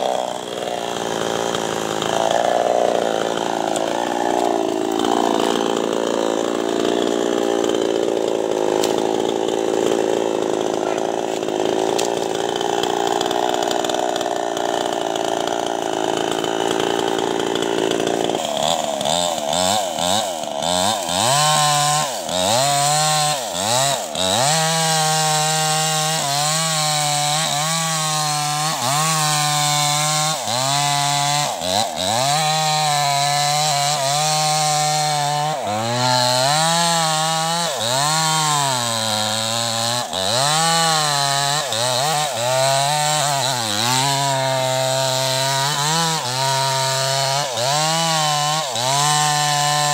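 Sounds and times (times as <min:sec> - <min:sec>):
chainsaw cutting wood: 0:00.0 - 0:49.9.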